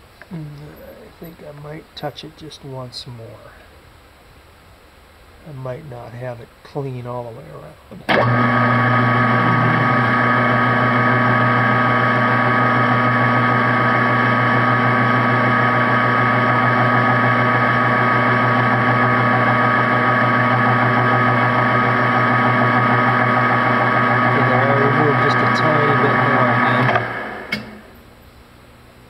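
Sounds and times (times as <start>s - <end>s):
metal lathe motor humming: 8.1s - 28.0s.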